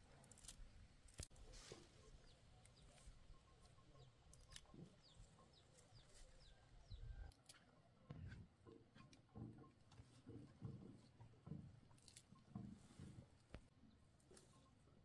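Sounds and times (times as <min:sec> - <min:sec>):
chickens clucking: 0:01.4 - 0:11.2.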